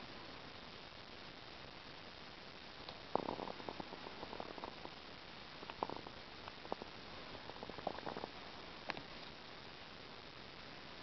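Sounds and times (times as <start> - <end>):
faint hiss: 0.0 - 11.0
crackling handling noise: 2.8 - 9.5.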